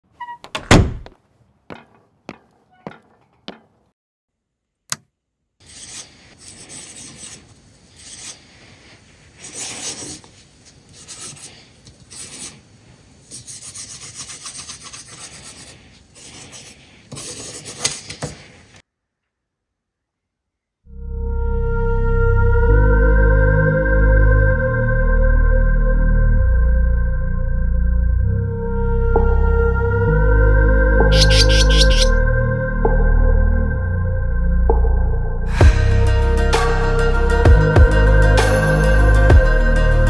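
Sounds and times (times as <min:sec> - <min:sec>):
pencil scratching on paper: 0:05.6 - 0:08.4, 0:09.4 - 0:10.2, 0:10.9 - 0:12.6, 0:13.3 - 0:18.3.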